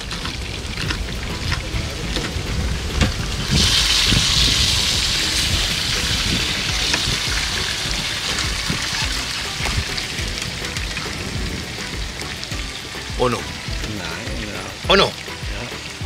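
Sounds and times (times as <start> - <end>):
hiss: 3.4 - 9.8.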